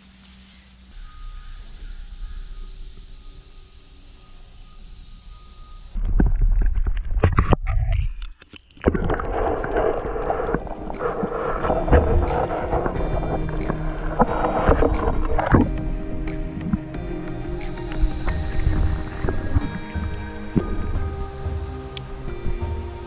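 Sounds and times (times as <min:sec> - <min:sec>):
faint high whine: 0:00.0 - 0:06.0, 0:09.0 - 0:23.0
quiet hiss: 0:00.0 - 0:06.0, 0:09.1 - 0:23.0
water sloshing and gurgling: 0:06.0 - 0:23.0
underwater rush: 0:08.7 - 0:23.0.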